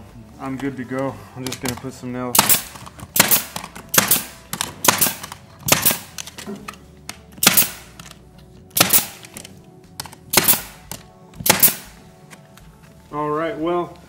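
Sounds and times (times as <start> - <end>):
brad nailer firing: 2.3 - 6.4, 7.4 - 8.1, 8.7 - 9.4, 10.0 - 12.0.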